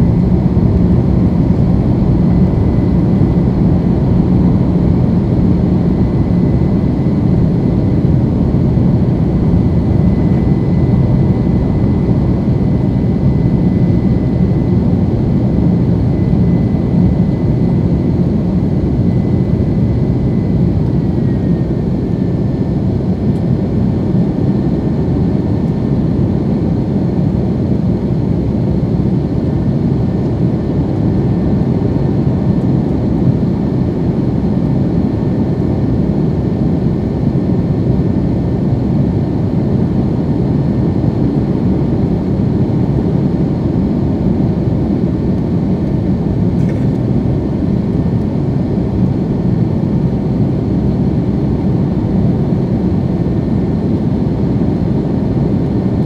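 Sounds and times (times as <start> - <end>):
thin engine whine: 0.0 - 26.0
jet engine roar in cabin: 0.0 - 56.0.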